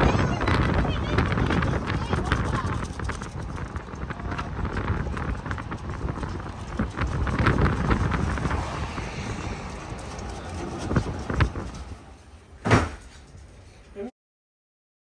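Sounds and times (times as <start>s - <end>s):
wind rumbling on microphone: 0.0s - 12.5s
footsteps on pavement: 0.1s - 12.1s
sharp knock: 12.6s - 13.1s.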